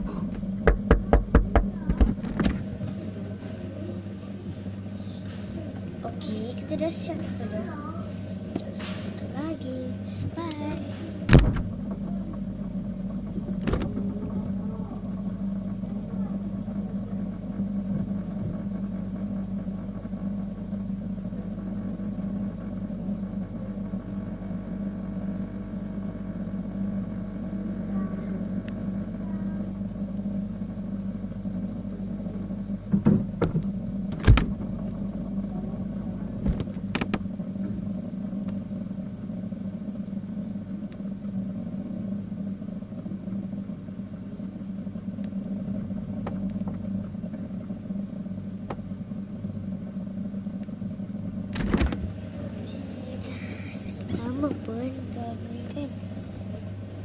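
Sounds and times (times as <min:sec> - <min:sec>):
low machine hum: 0:00.0 - 0:57.0
sharp knocks: 0:00.4 - 0:02.6.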